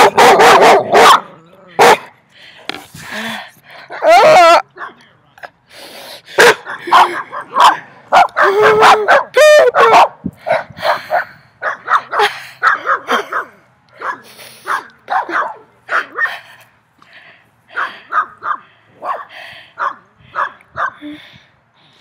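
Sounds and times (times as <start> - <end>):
dogs barking: 0.0 - 2.2, 3.8 - 5.0, 6.3 - 16.4, 17.7 - 21.0.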